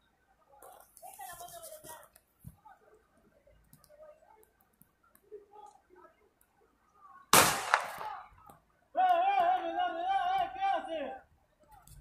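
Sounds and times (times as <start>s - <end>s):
faint distant voices: 0.0s - 12.0s
loud sharp bangs: 7.3s - 8.3s.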